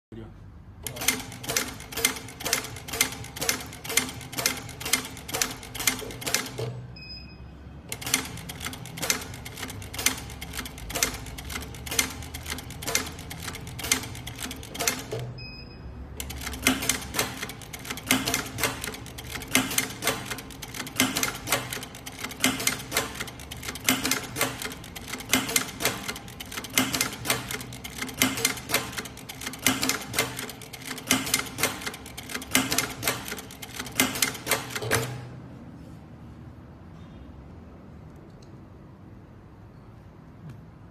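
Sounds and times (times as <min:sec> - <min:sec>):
sewing machine clattering: 0:00.8 - 0:06.7, 0:07.9 - 0:15.3, 0:16.2 - 0:35.2.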